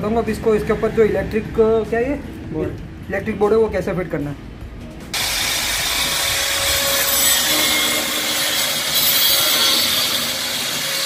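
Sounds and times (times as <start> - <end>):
angle grinder cutting wood: 5.2 - 11.0.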